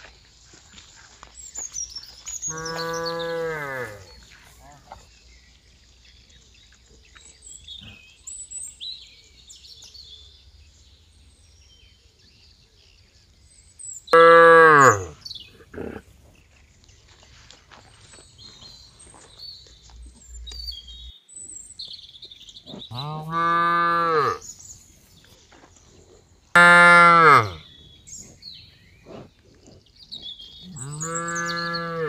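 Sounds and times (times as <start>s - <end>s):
cattle mooing: 2.5s - 4.1s, 14.2s - 15.1s, 22.9s - 24.4s, 26.6s - 27.6s, 30.7s - 32.0s.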